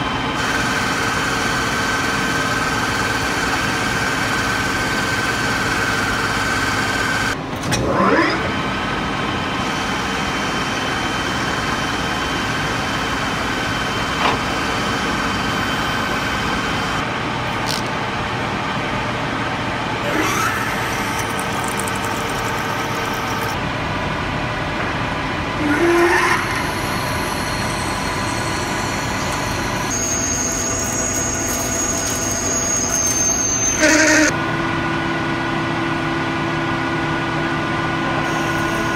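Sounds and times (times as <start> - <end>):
high-pitched drilling whine: 0.0 - 17.8, 20.0 - 23.6, 25.6 - 34.4, 38.2 - 38.9
metal lathe motor hum: 20.0 - 23.6, 25.4 - 34.4, 38.2 - 38.9
rising whines: 25.4 - 34.3.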